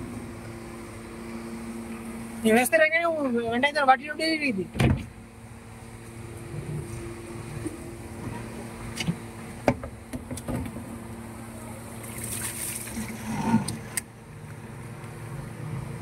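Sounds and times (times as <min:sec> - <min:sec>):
steady machine hum: 0:00.0 - 0:16.0
hose water splashing on plastic jars: 0:12.1 - 0:13.2.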